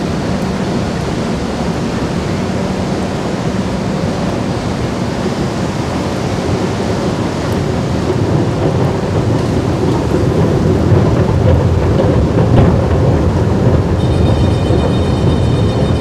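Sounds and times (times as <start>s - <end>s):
escalator rumbling: 0.0s - 16.0s
high steady whine: 12.4s - 16.0s.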